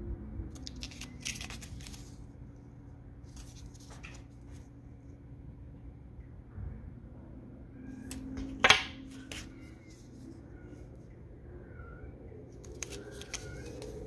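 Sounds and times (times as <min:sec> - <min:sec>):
steady low hum: 0:00.0 - 0:14.0
plastic sleeve crinkling: 0:00.5 - 0:02.3, 0:12.6 - 0:14.0.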